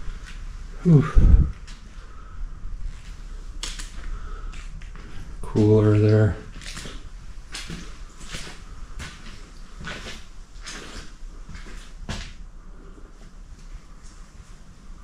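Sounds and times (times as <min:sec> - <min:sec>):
footsteps on gritty floor: 0:02.9 - 0:12.4.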